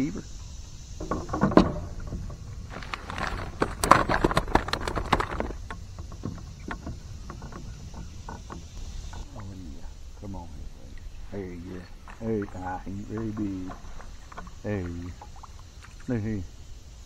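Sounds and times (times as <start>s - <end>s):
gear knocking and clattering: 1.0s - 9.2s.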